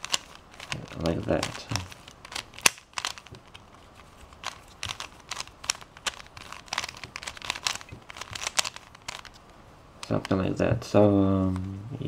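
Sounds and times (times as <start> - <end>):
plastic puzzle clicking: 0.0 - 3.6, 4.3 - 9.4.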